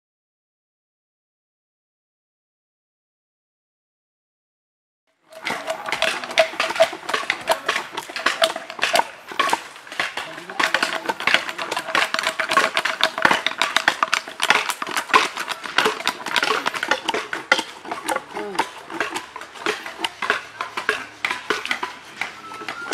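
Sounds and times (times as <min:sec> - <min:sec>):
hand tools chopping wood: 0:05.3 - 0:22.9
background voices: 0:15.4 - 0:22.9.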